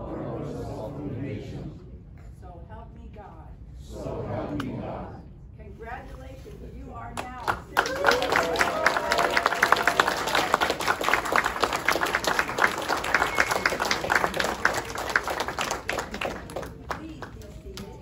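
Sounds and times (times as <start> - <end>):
hands clapping close by: 7.2 - 18.0
audience applauding: 7.7 - 17.9.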